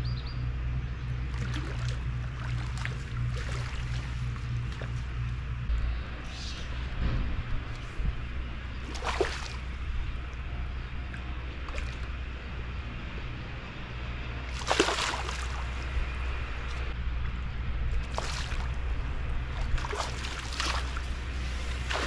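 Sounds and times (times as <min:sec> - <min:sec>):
fish splashing at water surface: 0:08.8 - 0:09.6, 0:14.5 - 0:15.8, 0:18.0 - 0:18.8, 0:19.6 - 0:21.1, 0:21.7 - 0:22.0.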